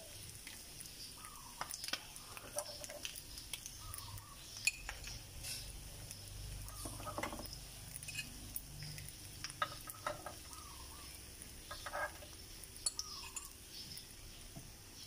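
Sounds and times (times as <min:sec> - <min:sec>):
faint sizzle from hot pan: 0:00.0 - 0:15.0
metal spoon clicking and scraping: 0:01.8 - 0:05.7, 0:06.7 - 0:10.6, 0:11.6 - 0:14.1.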